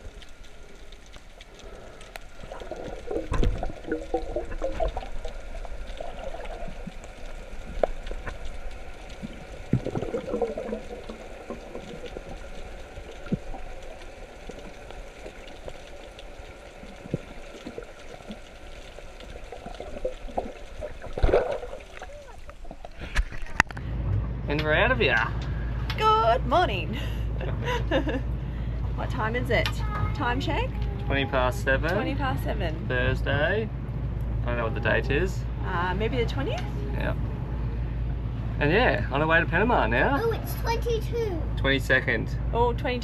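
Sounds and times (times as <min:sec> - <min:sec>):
water gurgling along a boat hull: 0:00.0 - 0:23.8.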